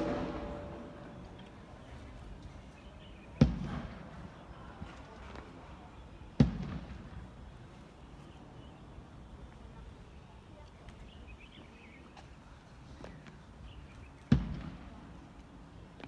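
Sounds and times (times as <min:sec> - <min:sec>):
sharp ringing impact: 0:00.0 - 0:01.3.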